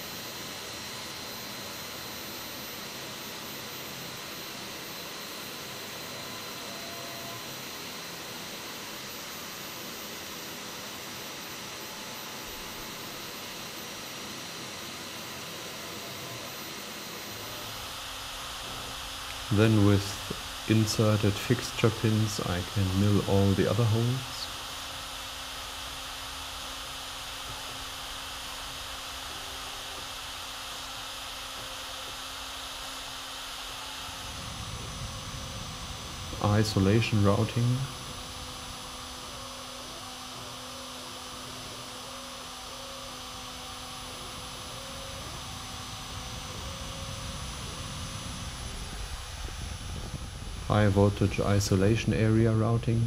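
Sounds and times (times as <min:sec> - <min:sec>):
mill spindle whining: 0:00.0 - 0:53.0
vacuum cleaner running: 0:00.0 - 0:53.0
faint high-pitched tones: 0:05.4 - 0:08.2.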